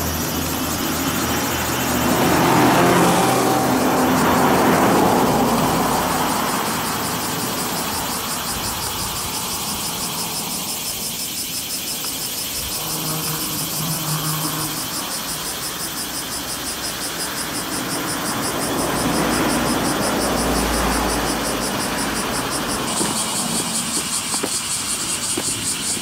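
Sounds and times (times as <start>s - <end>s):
vehicle passing: 0.0s - 11.2s, 12.5s - 25.8s
cicada chorus buzzing: 0.0s - 26.0s.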